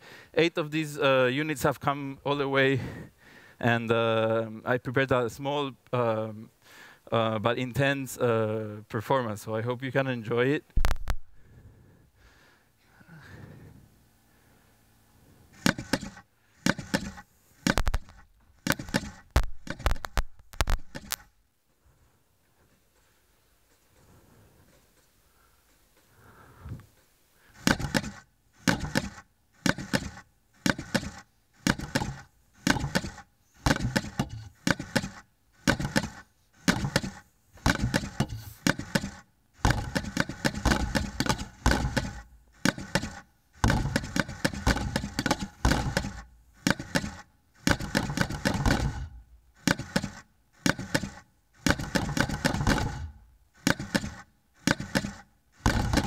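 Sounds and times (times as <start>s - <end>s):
robotic wooden box drums knocking: 10.8s - 11.3s, 15.6s - 21.2s, 27.6s - 56.0s.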